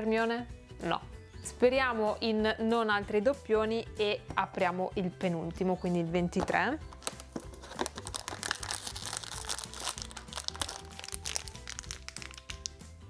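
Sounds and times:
soft background music: 0.0s - 13.0s
plastic bag crinkling: 6.9s - 12.8s.

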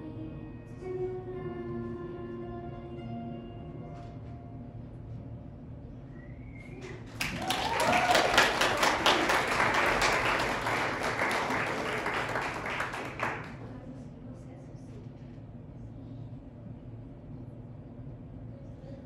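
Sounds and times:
audience applauding: 6.8s - 13.6s.

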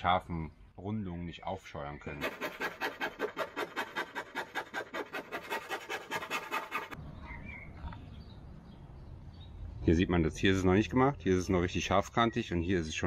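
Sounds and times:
hand sanding wood: 2.2s - 7.0s.

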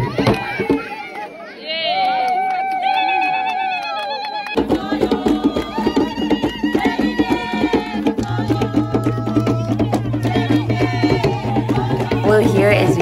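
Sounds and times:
voices singing: 4.2s - 13.0s
hand drums playing: 4.6s - 13.0s.

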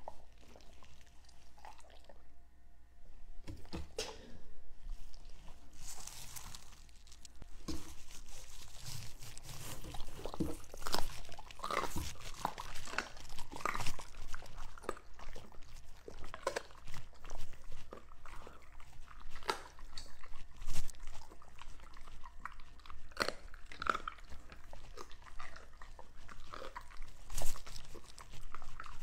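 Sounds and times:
dogs crunching food: 0.0s - 2.3s, 4.9s - 29.0s.

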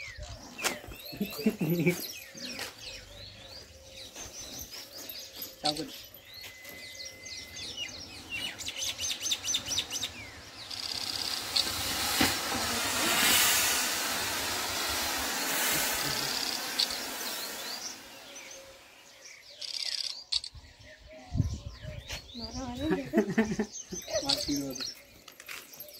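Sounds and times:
birds chirping: 0.0s - 25.9s
smoke sticks hissing: 0.6s - 3.0s, 6.8s - 20.5s.

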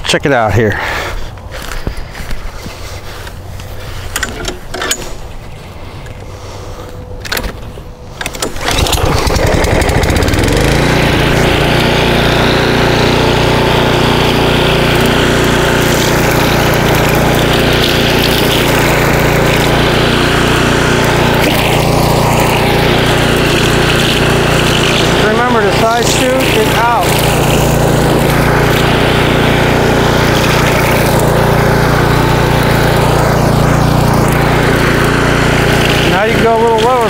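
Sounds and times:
trimmer line cutting weeds: 8.0s - 37.0s
string trimmer engine at full throttle: 8.4s - 37.0s.

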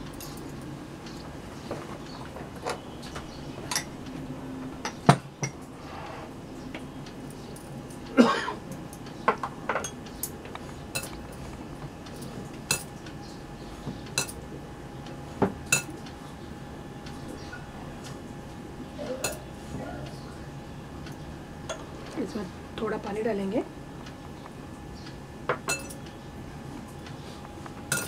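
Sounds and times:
bangles clinking on glass bowl: 25.7s - 26.0s.

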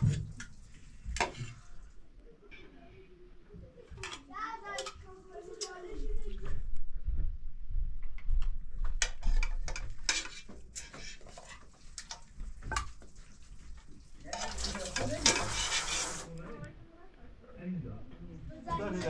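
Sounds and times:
dishes and utensils clinking: 0.0s - 2.8s, 3.8s - 5.8s, 9.0s - 16.3s.

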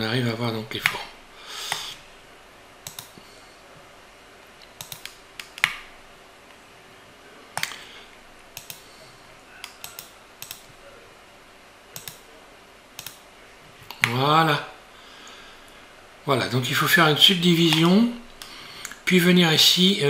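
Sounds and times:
mouse and keyboard clicks: 2.8s - 3.2s, 4.7s - 5.8s, 7.6s - 7.8s, 8.6s - 8.9s, 9.6s - 10.7s, 12.0s - 12.3s, 13.0s - 13.2s.

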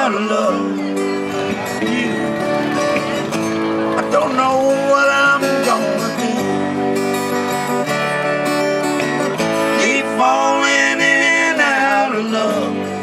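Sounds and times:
man singing: 0.0s - 3.2s, 3.9s - 7.0s, 9.5s - 13.0s
acoustic guitar: 0.0s - 13.0s
electric guitar: 0.0s - 13.0s.

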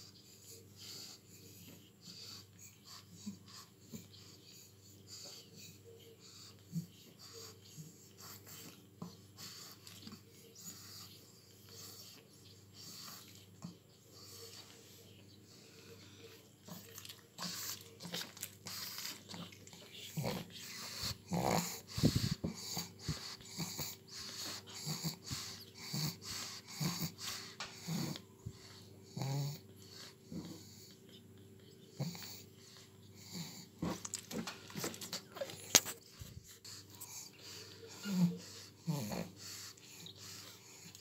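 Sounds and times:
puppies suckling smacking: 16.5s - 23.3s.

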